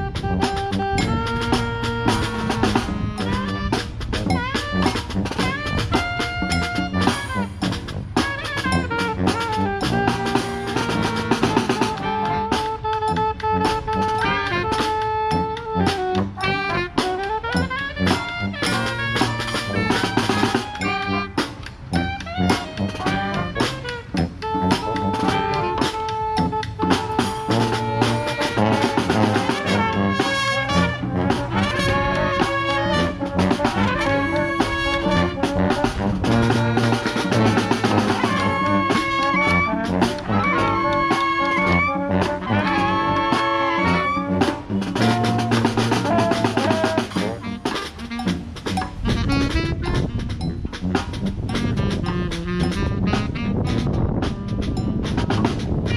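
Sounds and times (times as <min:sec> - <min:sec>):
brass band playing: 0:00.0 - 0:55.9
marching drums: 0:00.0 - 0:55.9.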